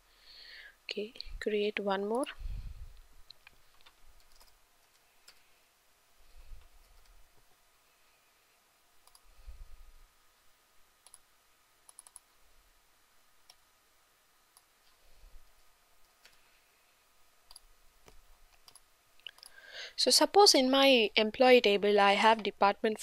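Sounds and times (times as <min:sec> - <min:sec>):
computer mouse clicks: 0:03.2 - 0:05.4, 0:09.0 - 0:09.3, 0:11.0 - 0:12.4, 0:16.0 - 0:16.4, 0:17.5 - 0:19.6.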